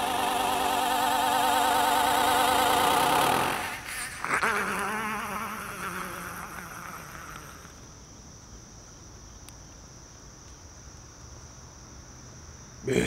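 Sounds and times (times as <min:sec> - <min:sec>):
steady high whine: 0:00.0 - 0:04.4
buzzing insect-like drone: 0:00.0 - 0:07.9.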